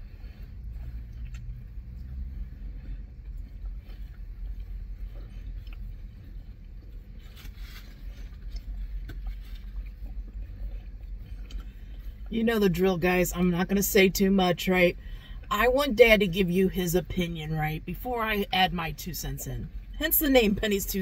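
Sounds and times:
people chewing: 0.0s - 12.3s
car cabin rumble: 0.0s - 21.0s.

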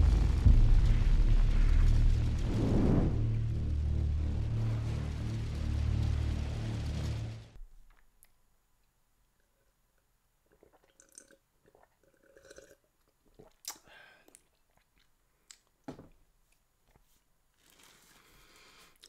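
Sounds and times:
sips and swallows from a mug: 10.4s - 15.7s.

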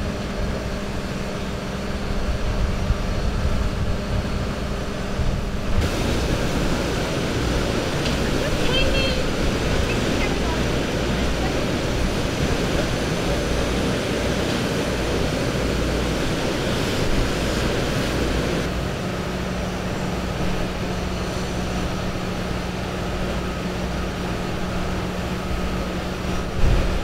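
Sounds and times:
wind on microphone: 0.0s - 18.7s, 25.6s - 27.0s
steady low hum: 0.0s - 27.0s
street traffic rumble: 0.0s - 27.0s.

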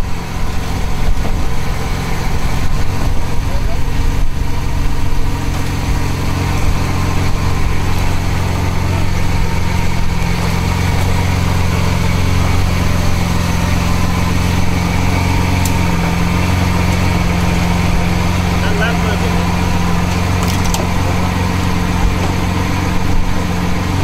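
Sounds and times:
car engine idling: 0.0s - 24.0s.

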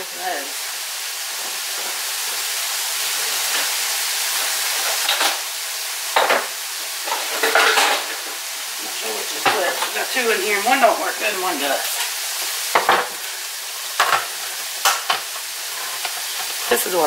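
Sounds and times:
meat sizzling in a pan: 0.0s - 17.0s
kitchen utensils clattering: 6.1s - 12.1s, 12.7s - 17.0s.

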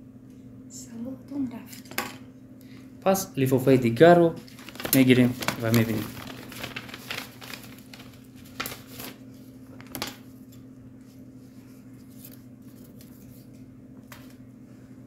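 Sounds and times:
steady low hum: 0.0s - 15.0s
paper crackling: 4.4s - 14.4s.

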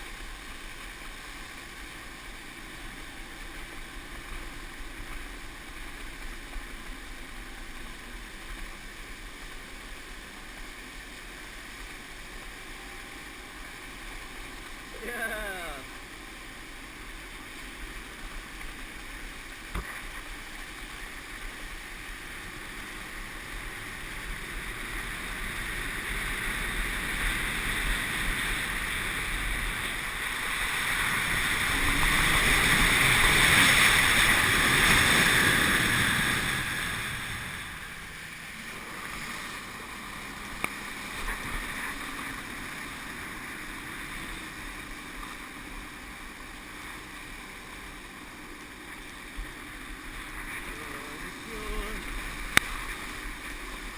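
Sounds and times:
rushing water spray: 0.0s - 53.9s.

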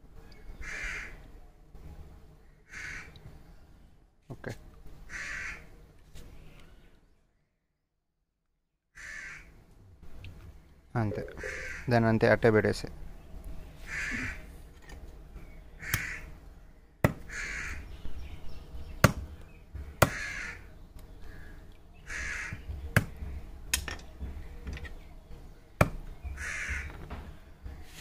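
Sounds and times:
bird calling: 11.1s - 12.0s, 13.8s - 14.5s, 15.4s - 16.4s, 17.2s - 22.8s, 26.0s - 27.1s.

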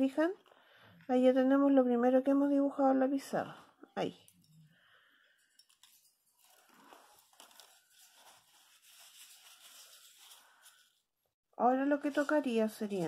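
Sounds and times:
paper tissue crinkling: 5.6s - 11.2s, 11.8s - 13.0s.

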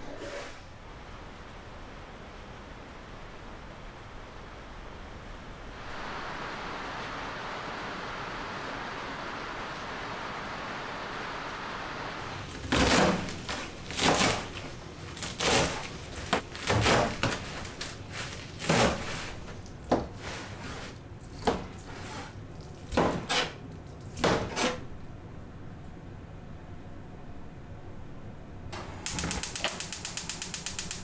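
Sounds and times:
rain hiss: 1.0s - 12.5s
knife chopping on cutting board: 22.9s - 23.6s, 24.2s - 24.8s.

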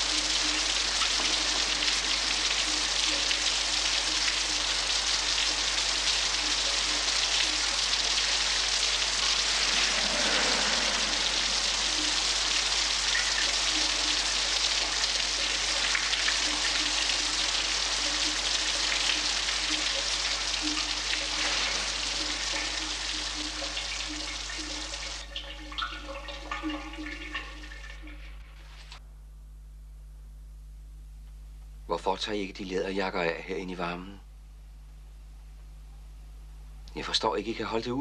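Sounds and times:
shower water spraying: 0.0s - 25.2s.

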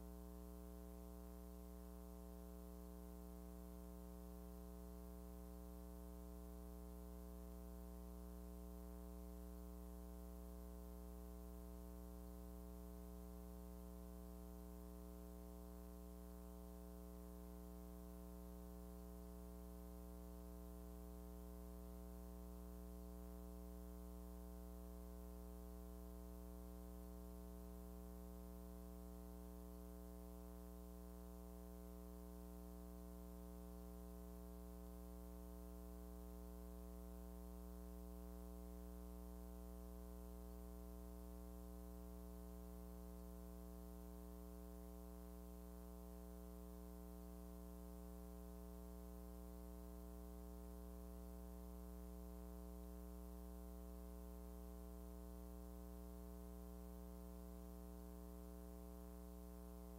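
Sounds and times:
faint electrical hum: 0.0s - 59.9s.

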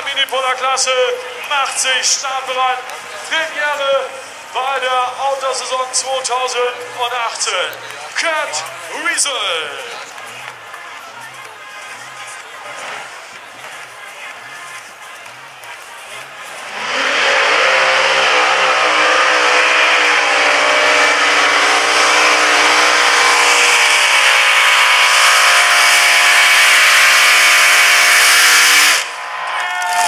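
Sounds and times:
pulling tractor engine at full throttle: 0.0s - 29.3s.

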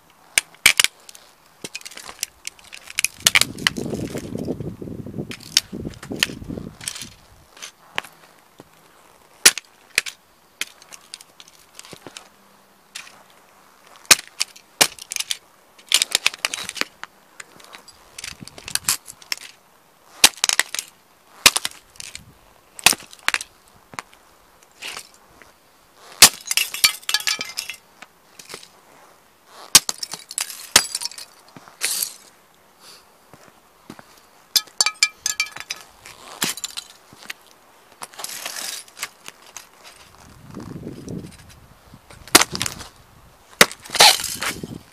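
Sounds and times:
plastic toys cracking under boots: 0.4s - 4.4s, 5.3s - 8.1s, 9.4s - 12.3s, 14.0s - 25.2s, 26.0s - 27.8s, 29.6s - 32.3s, 34.6s - 37.4s, 42.1s - 42.9s, 43.6s - 44.8s.

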